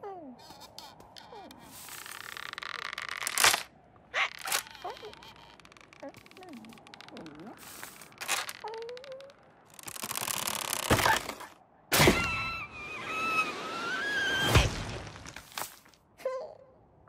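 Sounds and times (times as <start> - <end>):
wavering whistle-like tone: 12.2 - 14.5.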